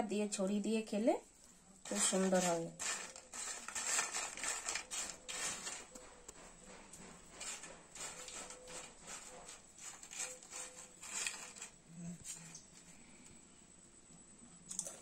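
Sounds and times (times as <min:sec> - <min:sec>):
potato chips crackling on paper plate: 0:01.9 - 0:05.9.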